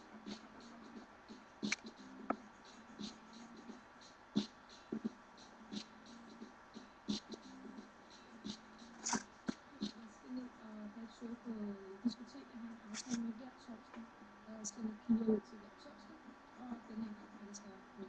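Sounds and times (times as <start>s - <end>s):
faint background music: 0.0s - 18.0s
paper being cut and handled: 13.0s - 13.2s.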